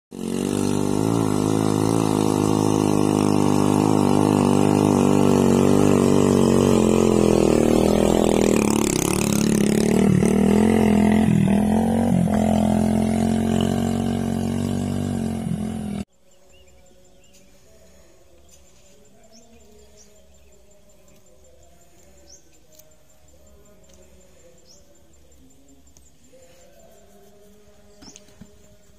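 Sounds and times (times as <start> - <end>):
small motorcycle engine running: 0.1 - 16.1.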